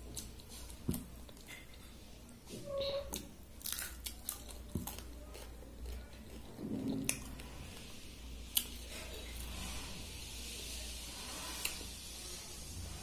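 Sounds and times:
chewing: 0:03.1 - 0:09.5.

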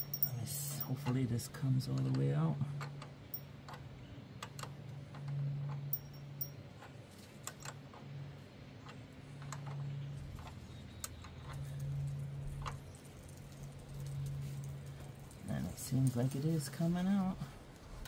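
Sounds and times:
wrench clicking on nut: 0:00.0 - 0:01.2
low hum: 0:00.0 - 0:01.7.

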